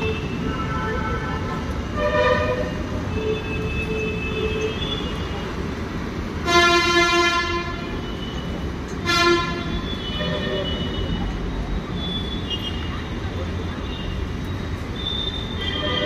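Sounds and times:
street traffic rumble: 0.0 - 16.0
vehicle horn: 6.5 - 7.9, 9.0 - 11.0.

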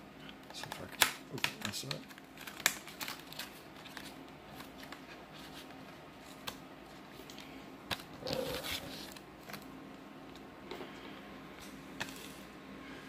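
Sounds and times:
plastic scrape and rustle: 8.2 - 9.6.

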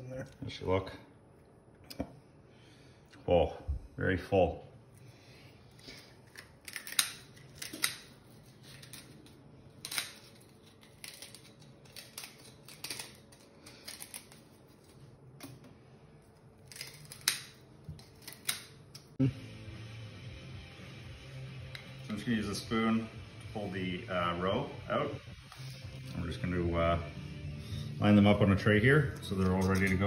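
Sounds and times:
sea urchin shells being cut: 6.2 - 14.5, 16.6 - 19.2.

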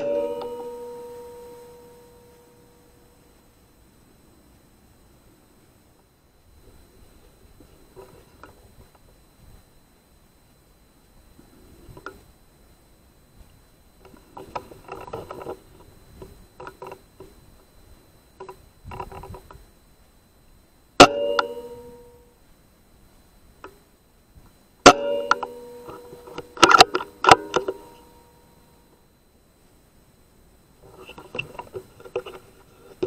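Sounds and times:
metallic ringing clicks: 0.0 - 3.2, 21.0 - 22.2, 24.8 - 29.0.

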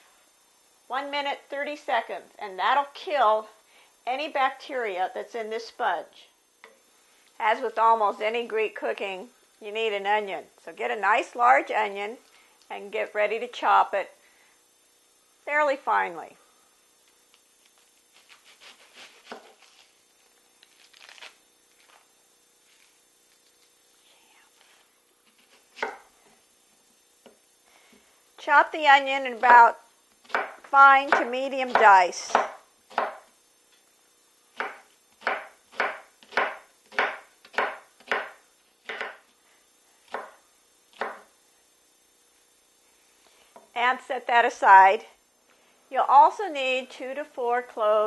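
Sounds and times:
onion skin rustling and crackling: 17.5 - 23.9
knife chopping on wooden board: 18.1 - 19.8, 25.3 - 26.1, 30.2 - 33.3, 34.6 - 39.3, 40.1 - 41.3
knife cutting onto wooden board: 18.1 - 19.9.

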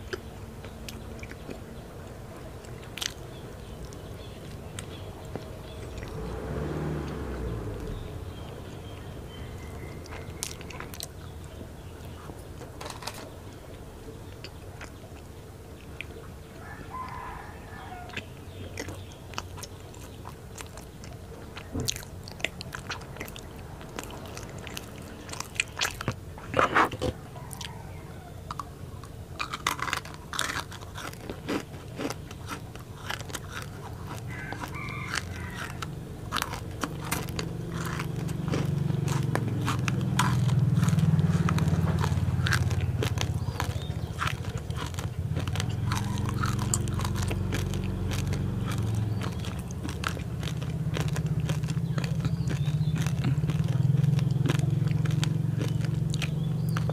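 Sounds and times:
chewing pastry: 0.0 - 56.9.

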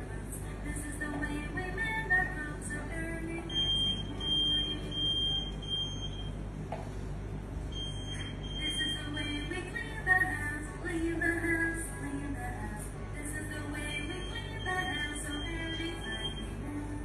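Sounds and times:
security gate alarm beeping: 3.5 - 6.4, 7.7 - 9.0, 14.1 - 16.6.

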